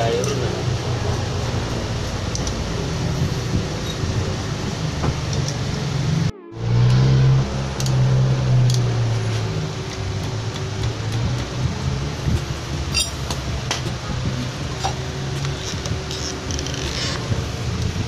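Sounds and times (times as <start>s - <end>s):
steady low hum: 0.0s - 18.0s
metallic clinks of tools: 12.9s - 13.3s.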